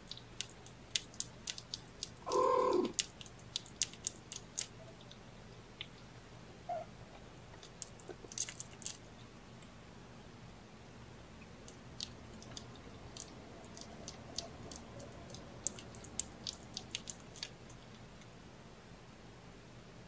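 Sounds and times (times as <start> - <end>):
kitten suckling wet clicks: 0.0 - 5.2, 7.6 - 9.1, 11.6 - 18.3.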